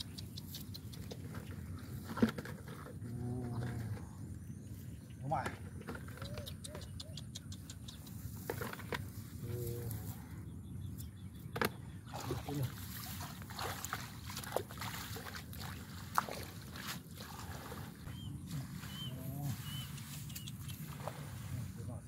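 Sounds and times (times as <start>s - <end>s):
hands splashing in muddy water: 12.1s - 19.0s
wet straw rustling: 12.7s - 21.8s.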